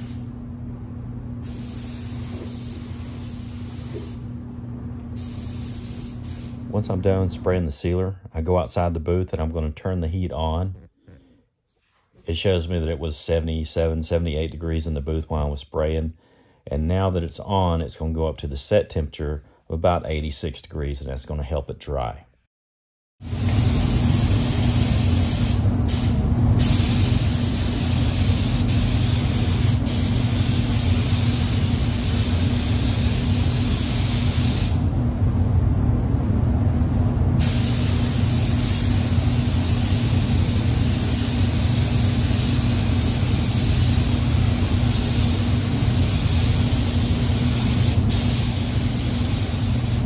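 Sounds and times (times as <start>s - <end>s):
paint spray gun hissing: 0.0s - 0.3s, 1.4s - 4.3s, 5.2s - 6.6s, 23.2s - 34.9s, 37.4s - 50.0s
steady low hum: 0.0s - 11.2s, 23.3s - 50.0s.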